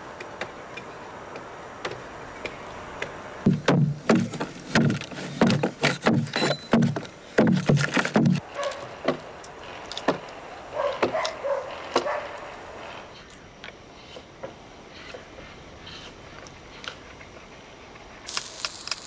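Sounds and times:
hand tool chopping wood: 3.5 - 8.4.

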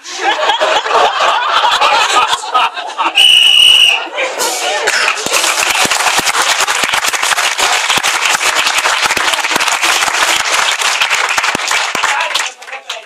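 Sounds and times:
audience applauding: 4.8 - 13.0.

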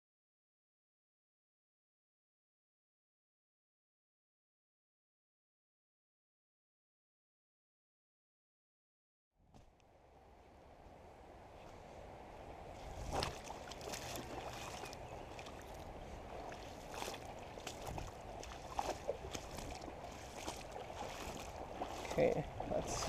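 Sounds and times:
creek water running over stones: 12.8 - 23.0.

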